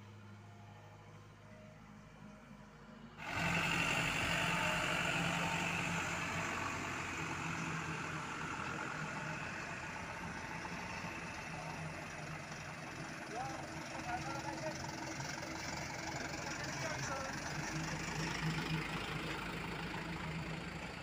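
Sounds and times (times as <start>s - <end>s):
diesel truck driving past: 0.0s - 21.0s.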